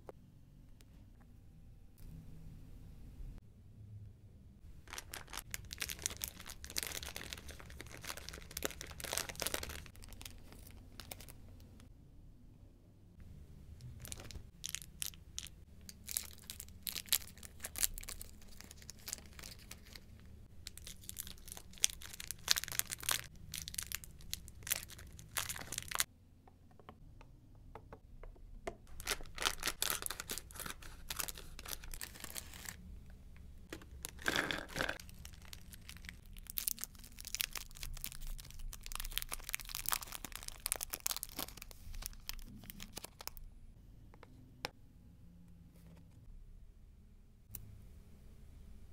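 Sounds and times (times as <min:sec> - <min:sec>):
candy wrappers crinkling and tearing: 0:04.8 - 0:11.4, 0:13.8 - 0:26.1, 0:28.9 - 0:32.8, 0:33.7 - 0:43.5.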